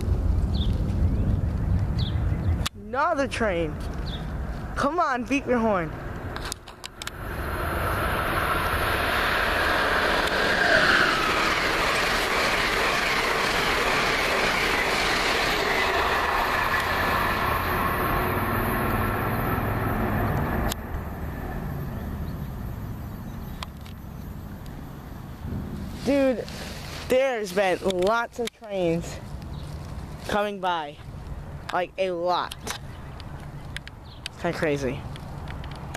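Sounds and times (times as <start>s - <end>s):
train passing at speed: 4.3s - 27.8s.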